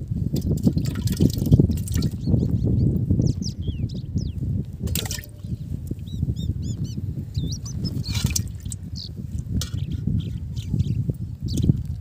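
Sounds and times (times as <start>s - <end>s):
fish splashing in metal pot: 0.4s - 2.2s, 4.8s - 5.5s, 8.1s - 8.8s
small birds chirping: 1.7s - 4.5s, 5.3s - 12.0s.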